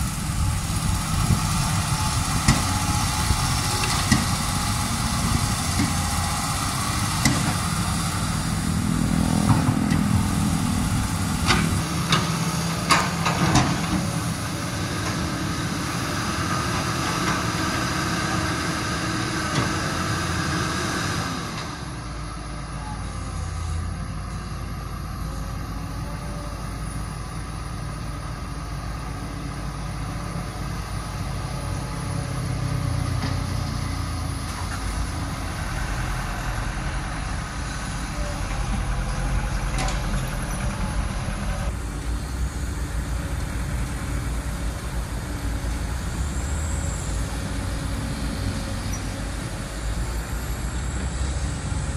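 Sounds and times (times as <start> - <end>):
excavator diesel engines: 0.0 - 51.9.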